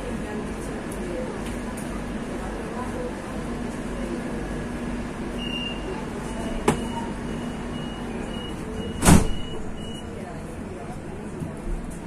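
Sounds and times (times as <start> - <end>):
door warning beeps: 5.4 - 10.2
loud thud: 9.0 - 9.4.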